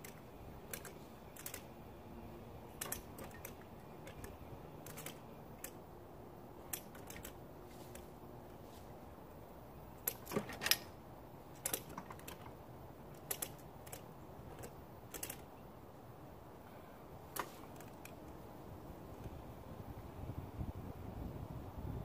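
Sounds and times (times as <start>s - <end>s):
ratchet strap clicking: 0.0s - 1.7s, 2.7s - 5.8s, 6.6s - 8.1s, 11.6s - 15.5s.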